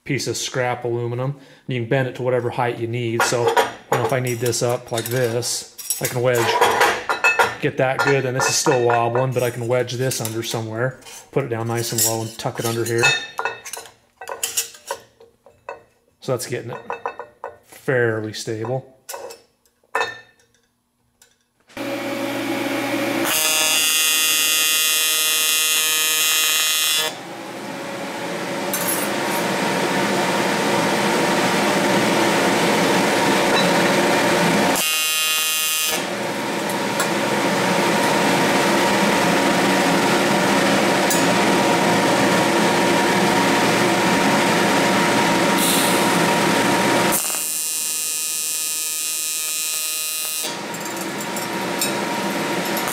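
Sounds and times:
welding arc buzzing: 0:21.7 - 0:52.9
welder cooling fans: 0:21.8 - 0:52.9.

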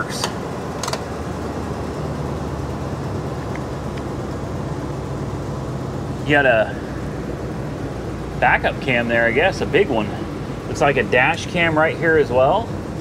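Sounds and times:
air-conditioning blower hum: 0:00.0 - 0:13.0
truck engine idling: 0:00.0 - 0:13.0
knob clicks: 0:00.2 - 0:01.0.

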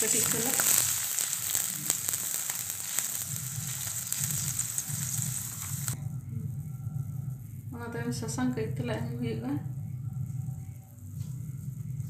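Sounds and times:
milk sizzling in hot oil: 0:00.0 - 0:06.0
sharp crackles: 0:00.0 - 0:06.0.

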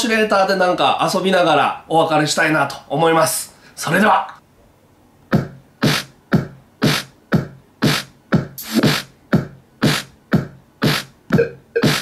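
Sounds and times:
electronic drum machine beat: 0:05.3 - 0:12.0.

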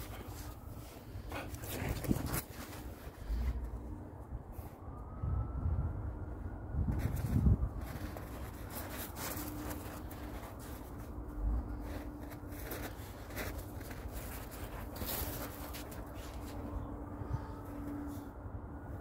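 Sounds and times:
footsteps crunching in snow: 0:06.9 - 0:16.9.

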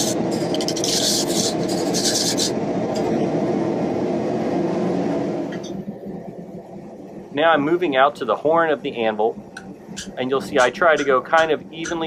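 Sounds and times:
wire brush scrubbing hot steel: 0:00.0 - 0:02.6, 0:09.0 - 0:12.0
forge burner roaring: 0:00.0 - 0:12.0.

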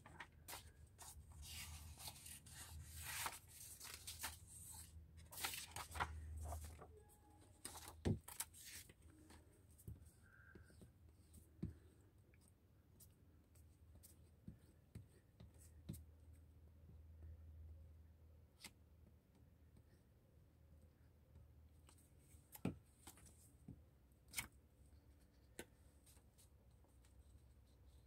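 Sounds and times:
paper rustling: 0:00.0 - 0:07.0.

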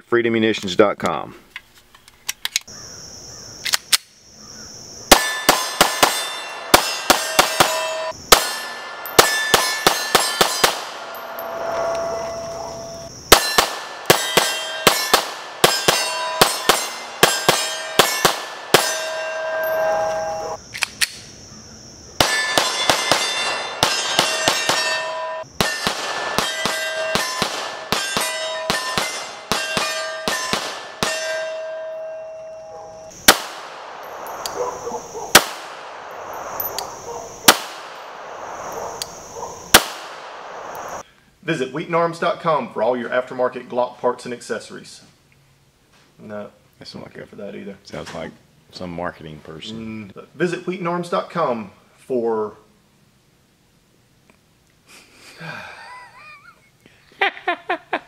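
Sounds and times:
pistol shots: 0:05.1 - 0:11.4, 0:13.3 - 0:19.2, 0:22.2 - 0:31.4, 0:33.2 - 0:34.5, 0:35.3 - 0:41.0
metallic ringing: 0:05.1 - 0:20.6, 0:22.2 - 0:33.2.

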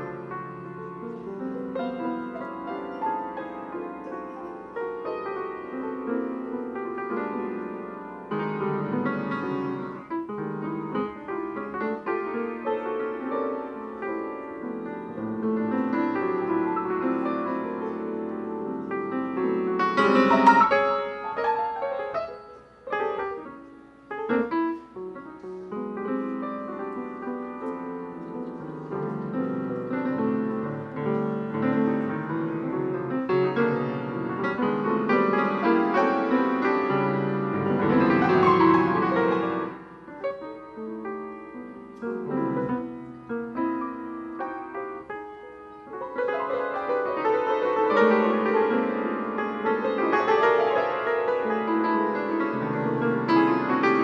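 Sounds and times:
solo piano chords: 0:00.0 - 0:54.0.

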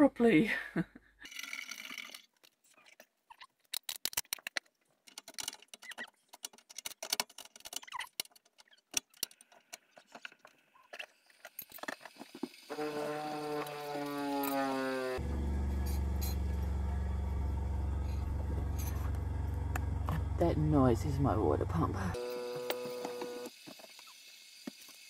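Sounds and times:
water pump whine: 0:12.4 - 0:23.8.

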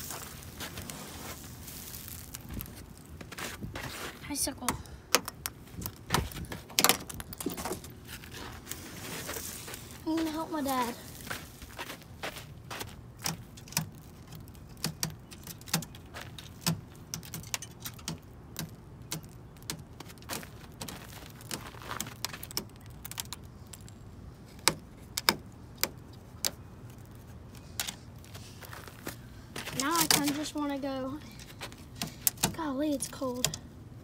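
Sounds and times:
footsteps crunching on icy snow: 0:00.0 - 0:04.3, 0:07.5 - 0:13.1, 0:20.1 - 0:22.4, 0:28.2 - 0:30.9.

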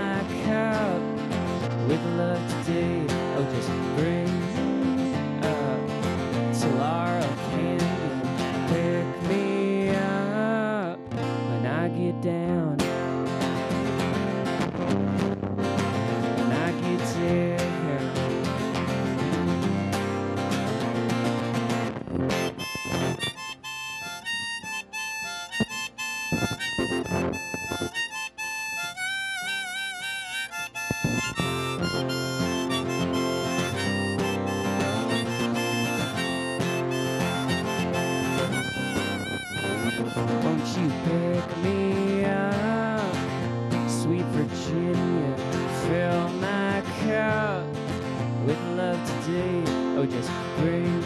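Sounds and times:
acoustic guitar strumming: 0:00.0 - 0:51.0
harmonica melody: 0:13.3 - 0:43.5.

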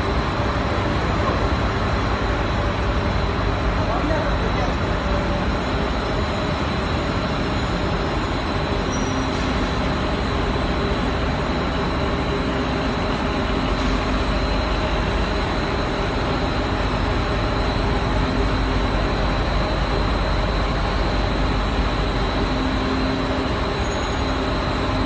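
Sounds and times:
machine motors and rollers running: 0:00.0 - 0:25.0.

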